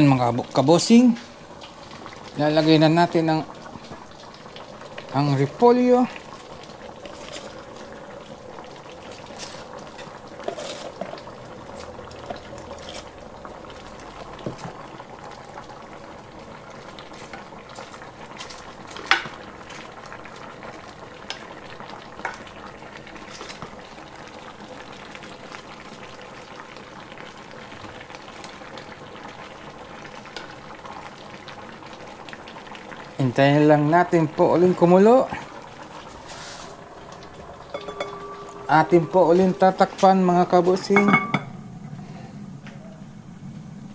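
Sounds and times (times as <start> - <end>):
pot bubbling: 0.0 - 43.9.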